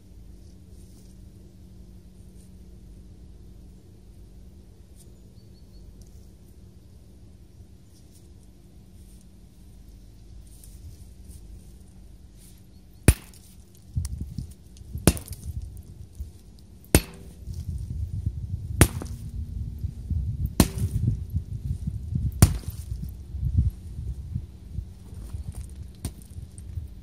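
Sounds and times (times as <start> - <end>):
low rumbling: 9.5 - 27.0
sledgehammer blows: 14.9 - 15.7, 16.9 - 18.0, 18.6 - 19.3, 20.4 - 21.6, 22.2 - 23.0.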